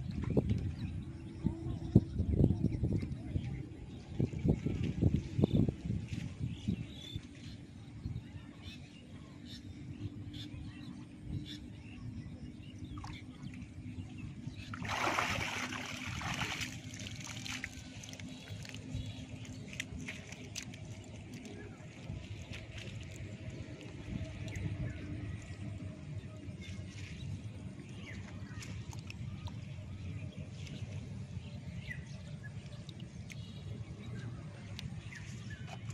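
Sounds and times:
steady low rumble: 0.0 - 35.9
water splashing and sloshing: 2.8 - 7.7, 12.6 - 35.9.

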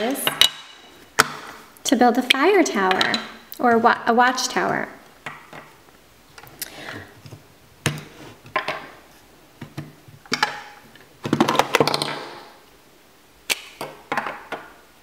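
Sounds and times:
plastic bricks clicking and clattering: 9.6 - 12.6.

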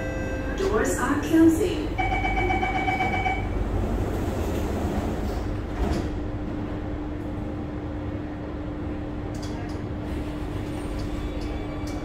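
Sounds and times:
train rumble: 0.0 - 12.0
door warning beep: 2.0 - 3.6.

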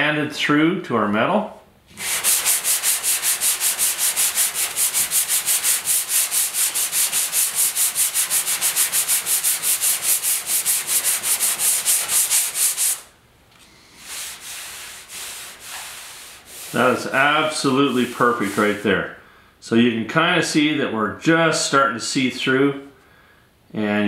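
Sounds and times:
hand rubbing a surface: 1.9 - 19.2
sandpaper scraping on metal: 2.0 - 13.1, 14.0 - 19.0.

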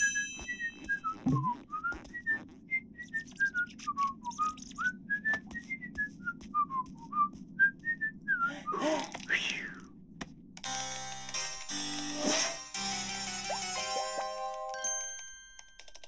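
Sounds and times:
person whistling a tune: 0.0 - 8.8.

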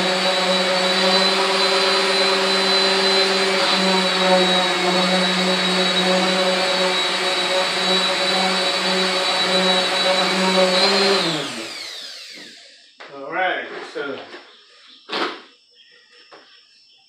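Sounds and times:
electric sander running: 0.0 - 12.8
sander spinning down: 0.0 - 12.9.

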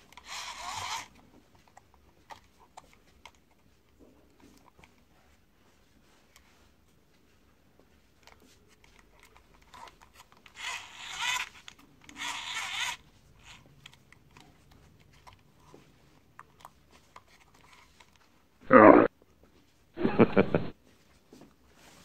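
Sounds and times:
plastic toy rasping: 0.0 - 3.5, 8.9 - 15.8
plastic clicks and rubbing: 8.2 - 18.4.

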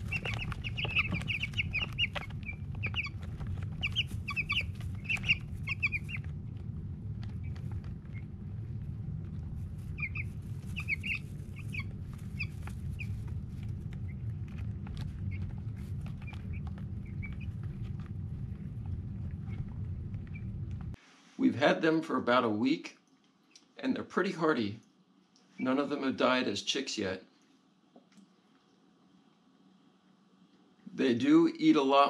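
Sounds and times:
beaks pecking plastic feeder: 0.0 - 20.5
chicks peeping: 0.0 - 21.0
low hum: 0.0 - 21.0.

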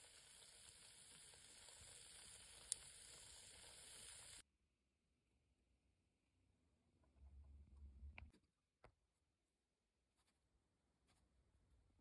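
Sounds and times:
food sizzling and crackling: 0.0 - 4.4.

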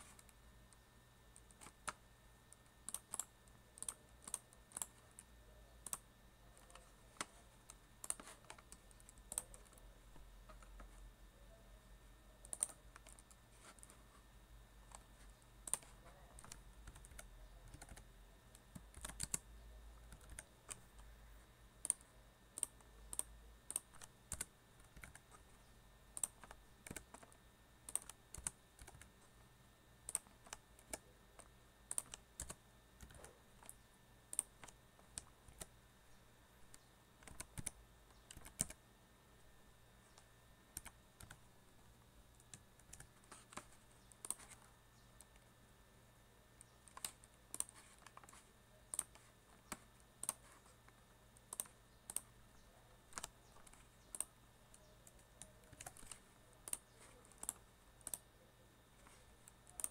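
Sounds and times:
computer keyboard key clicks: 2.9 - 5.0, 12.5 - 13.2, 18.8 - 19.4, 26.2 - 27.2, 27.9 - 29.1, 48.9 - 50.4.

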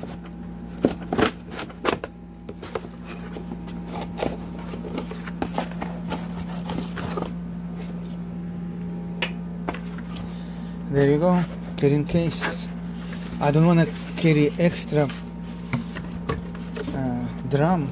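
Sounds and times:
low hum: 0.0 - 17.9
cardboard box scrapes and rustles: 2.6 - 8.0.

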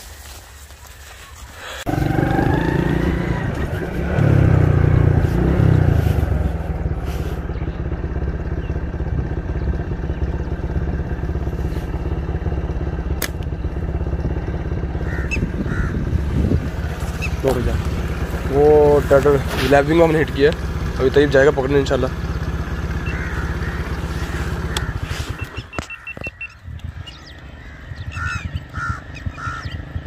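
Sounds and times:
motorcycle engine running: 1.8 - 30.0
sharp click: 13.2 - 13.5.

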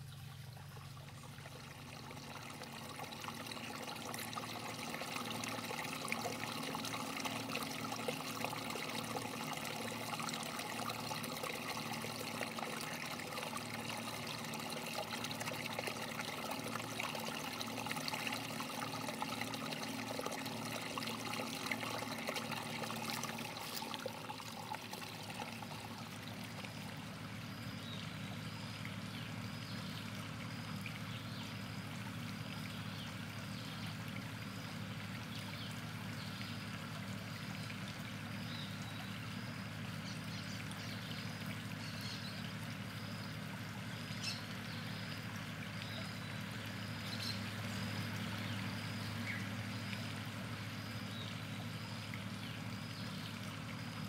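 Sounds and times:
water splashing over rocks: 0.0 - 27.8.

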